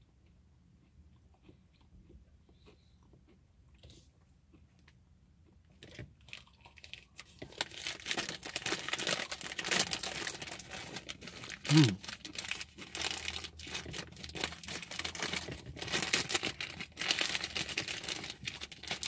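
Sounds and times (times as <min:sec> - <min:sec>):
chewing crisp food: 0:00.0 - 0:19.0
plastic wrapper crinkling: 0:06.2 - 0:19.0.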